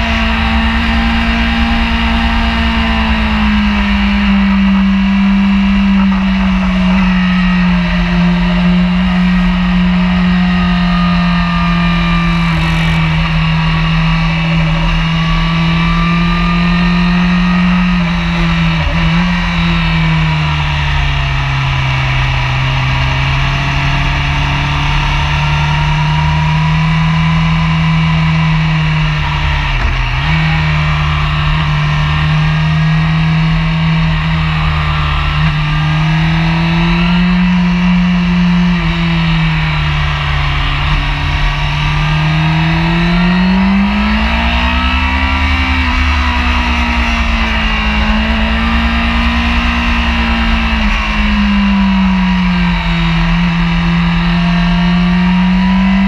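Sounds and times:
motorcycle engine running hard: 0:00.0 - 0:56.0.

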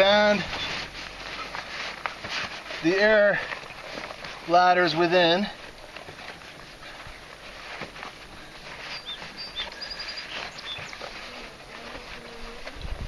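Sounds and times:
nylon fabric rustling: 0:00.0 - 0:13.0
small bird chirping: 0:08.9 - 0:11.1.

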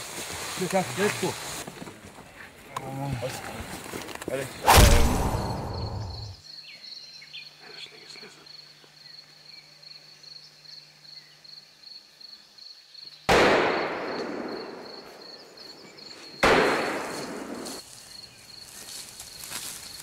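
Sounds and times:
gunshots echoing: 0:04.7 - 0:06.4, 0:13.3 - 0:14.8, 0:16.4 - 0:17.6
high insect chirping: 0:05.1 - 0:13.3, 0:17.1 - 0:20.0.

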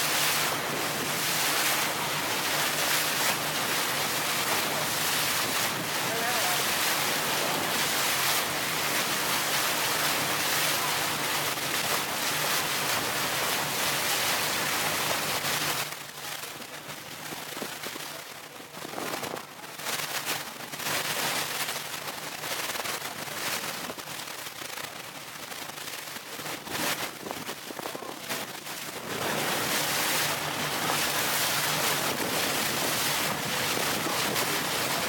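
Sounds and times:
boat engine hum: 0:00.0 - 0:17.2, 0:27.2 - 0:35.0
rushing water: 0:00.0 - 0:35.0
wind noise on microphone: 0:16.6 - 0:24.8, 0:25.4 - 0:35.0.

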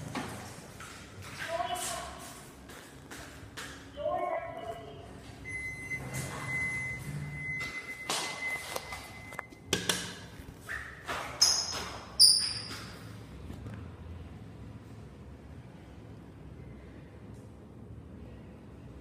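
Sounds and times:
steady electronic beep: 0:05.4 - 0:09.6.

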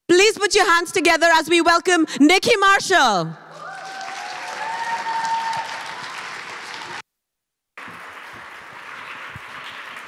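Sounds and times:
audience applauding: 0:03.5 - 0:07.0, 0:07.8 - 0:10.0.

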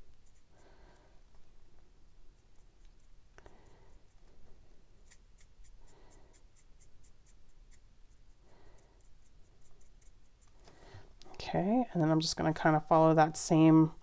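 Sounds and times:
marker scratching on paper: 0:00.2 - 0:00.6, 0:05.0 - 0:08.4, 0:09.0 - 0:10.6.

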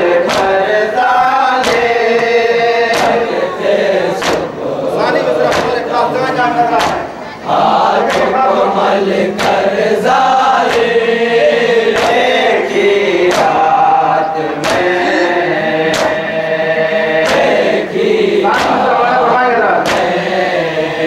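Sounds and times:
men chanting a lament: 0:00.0 - 0:21.0
chest-beating slaps: 0:00.1 - 0:03.5, 0:04.1 - 0:04.6, 0:05.3 - 0:05.9, 0:06.6 - 0:08.4, 0:09.3 - 0:11.0, 0:11.9 - 0:16.5, 0:17.1 - 0:19.2, 0:19.8 - 0:20.4.

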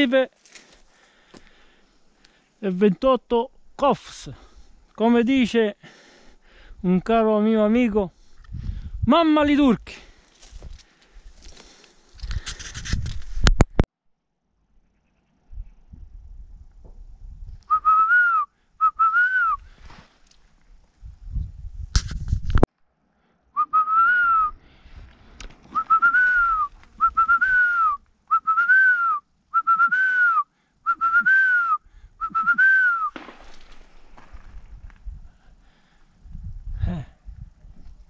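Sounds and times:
person whistling: 0:17.7 - 0:19.6, 0:23.6 - 0:24.6, 0:25.7 - 0:33.2.

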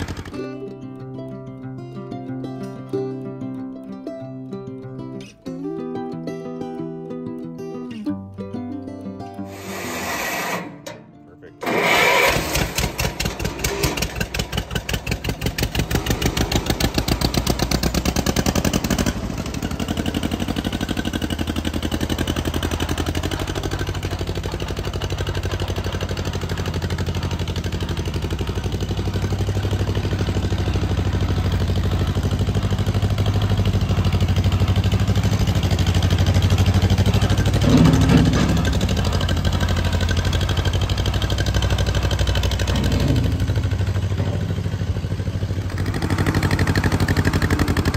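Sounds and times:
louder clatter: 0:00.0 - 0:00.4, 0:11.6 - 0:45.1
sharp exhaust pops: 0:00.0 - 0:00.5, 0:11.6 - 0:44.9
tractor engine running: 0:00.0 - 0:05.4, 0:09.5 - 0:47.9.

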